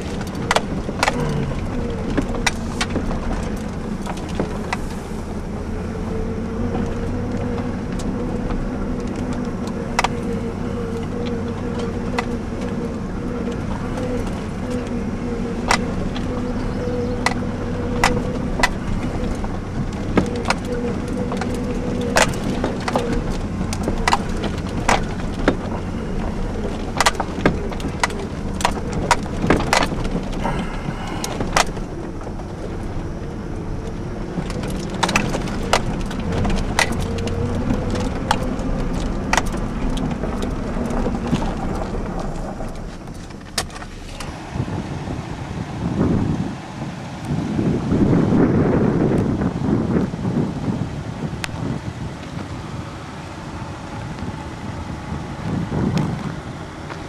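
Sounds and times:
sharp knocks and rattles: 0:00.0 - 0:05.0, 0:06.4 - 0:44.3
truck engine running: 0:00.0 - 0:57.0.

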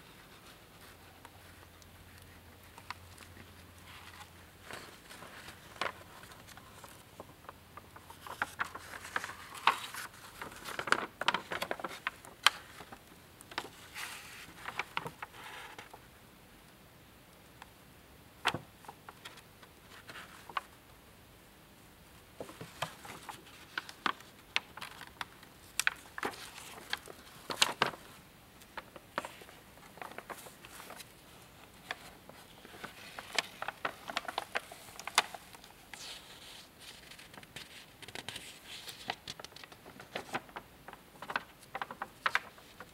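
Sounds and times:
old paper pages rustling: 0:00.0 - 0:16.1, 0:18.4 - 0:20.8, 0:22.3 - 0:42.9.

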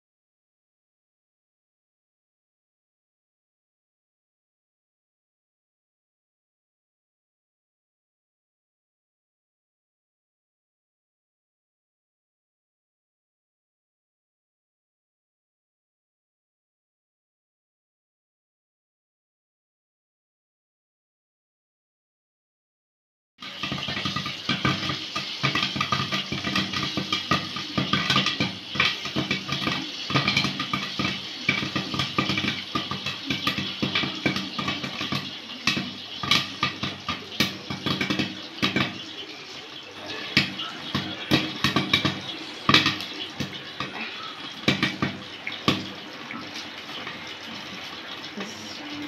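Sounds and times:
oil sizzling: 0:23.4 - 0:49.0
popcorn popping: 0:23.4 - 0:49.0.

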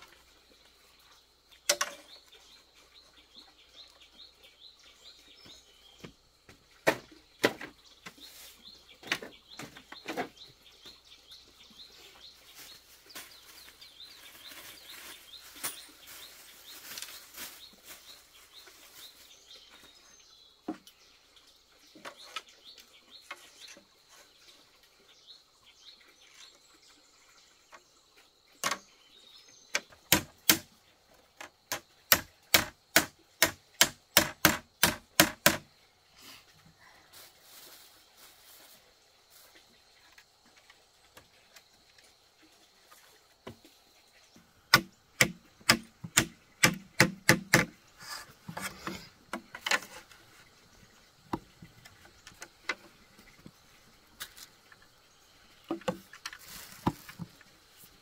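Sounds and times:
sharp knocks and taps: 0:31.4 - 0:35.7, 0:44.7 - 0:47.8.

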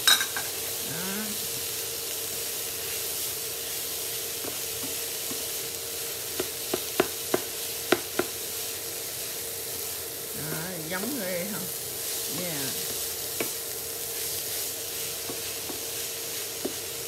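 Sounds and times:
food sizzling in a frying pan: 0:00.0 - 0:17.0
spatula knocking against pan: 0:06.4 - 0:08.4
wooden spatula stirring: 0:14.2 - 0:17.0.

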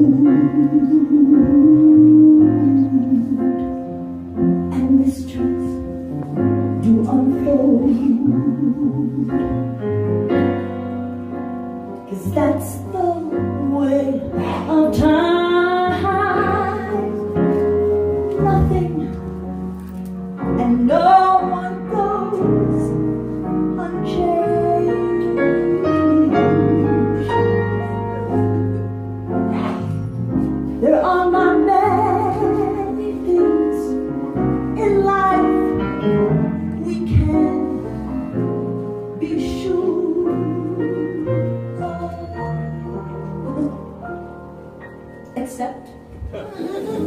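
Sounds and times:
woman singing ballad: 0:00.0 - 0:03.8, 0:06.8 - 0:09.6, 0:12.1 - 0:17.6, 0:18.2 - 0:19.2, 0:20.5 - 0:27.6, 0:30.8 - 0:35.8, 0:36.7 - 0:37.8, 0:39.2 - 0:44.0.

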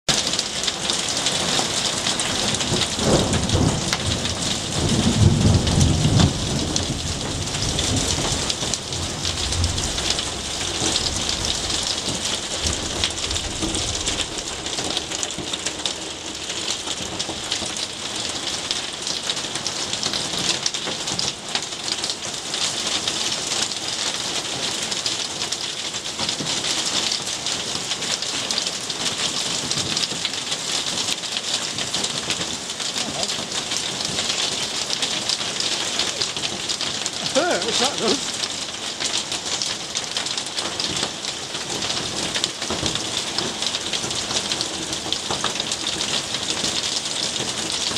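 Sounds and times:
heavy rain with hail: 0:00.1 - 0:47.9
thunder rumble: 0:02.5 - 0:15.6.

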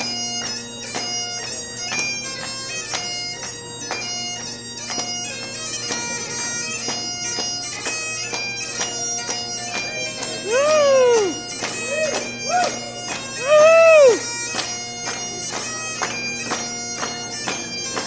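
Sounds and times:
bagpipes playing: 0:00.0 - 0:18.0
person whooping shout: 0:10.4 - 0:12.8, 0:13.4 - 0:14.2.

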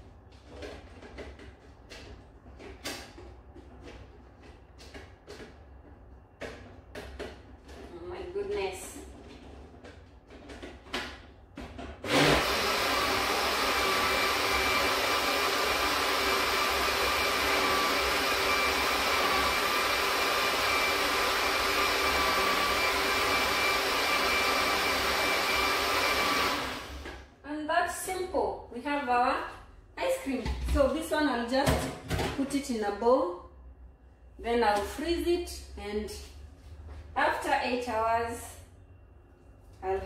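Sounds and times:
electric blender running: 0:12.0 - 0:27.2.

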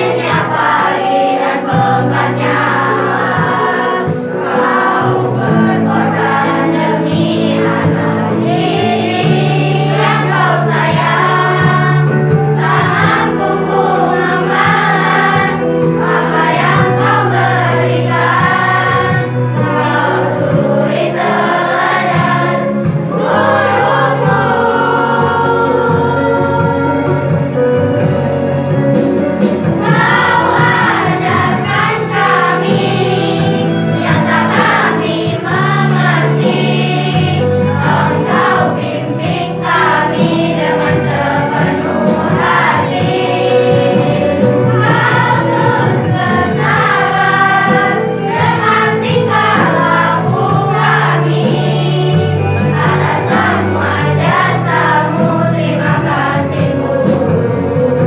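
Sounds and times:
choir singing: 0:00.0 - 0:28.1, 0:29.5 - 0:58.0
instrumental accompaniment: 0:00.0 - 0:58.0
held bass notes: 0:20.8 - 0:58.0.

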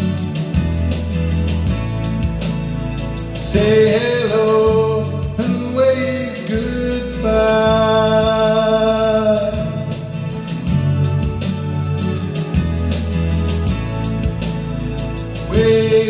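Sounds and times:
backing track with guitar: 0:00.0 - 0:16.0
man singing into microphone: 0:03.4 - 0:10.5, 0:15.4 - 0:16.0.

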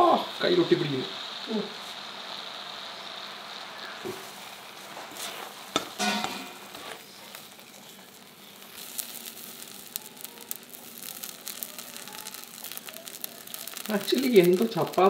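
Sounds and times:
slime sizzling in a hot pan: 0:00.0 - 0:15.0
wooden spatula scraping: 0:04.9 - 0:14.7.

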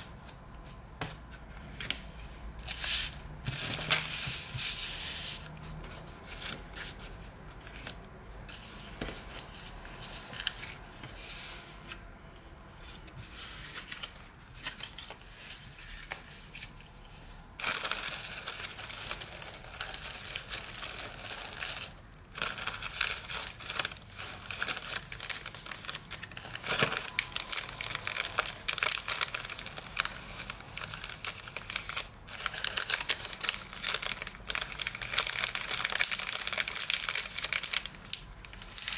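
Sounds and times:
tea bag sachets handled: 0:17.6 - 0:38.9
tissue paper crinkling: 0:17.6 - 0:38.9.

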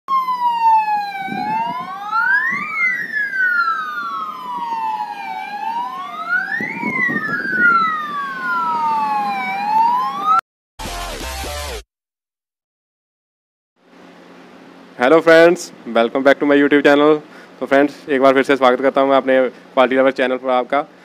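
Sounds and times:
police siren wailing: 0:00.1 - 0:10.4.

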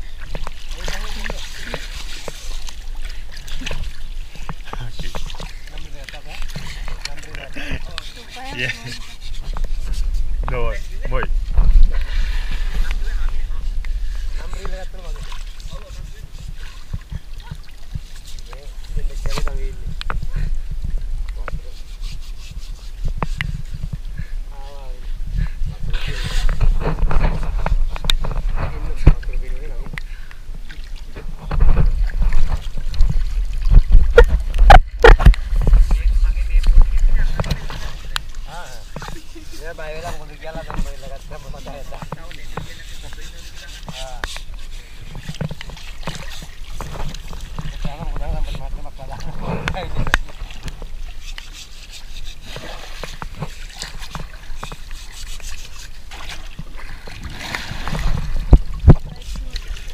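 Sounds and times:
small splashes and drips: 0:00.0 - 0:08.4, 0:50.0 - 0:59.9
water splashing and trickling: 0:00.0 - 0:59.9.

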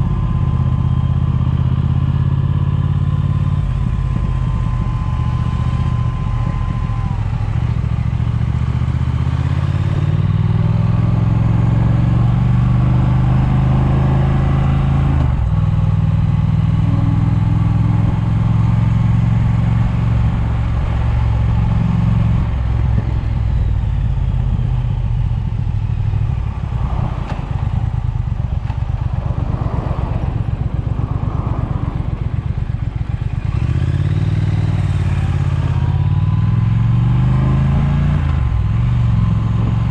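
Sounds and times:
motorcycle engine running: 0:00.0 - 0:39.9
wind on microphone: 0:19.7 - 0:35.7.

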